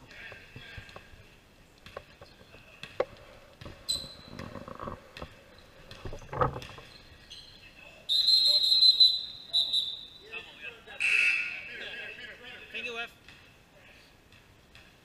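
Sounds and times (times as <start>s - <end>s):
sneakers squeaking: 3.6s - 10.2s.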